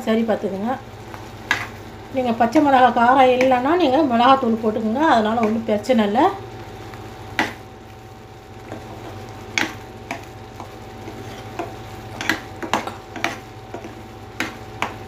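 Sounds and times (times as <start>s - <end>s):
faint hum: 0.0s - 15.0s
spoon scraping a pan: 8.7s - 15.0s.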